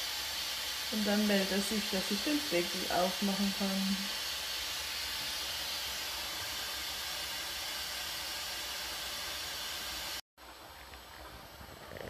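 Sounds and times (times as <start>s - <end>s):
pressure cooker hissing steam: 0.0s - 10.2s.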